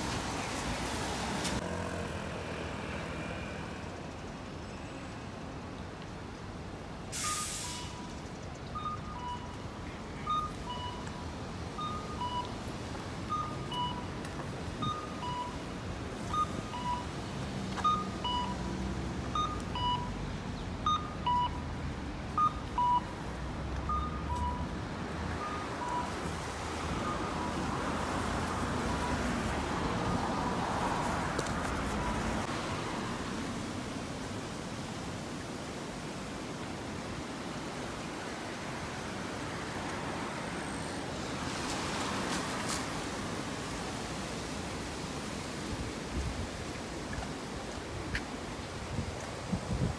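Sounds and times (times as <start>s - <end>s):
traffic: 0.0s - 49.9s
crossing signal two-note beep: 8.8s - 9.6s, 10.2s - 11.1s, 11.8s - 12.5s, 13.3s - 14.1s, 14.8s - 15.6s, 16.3s - 17.1s, 17.8s - 18.6s, 19.4s - 20.2s, 20.8s - 21.6s, 22.4s - 23.2s, 23.9s - 24.7s.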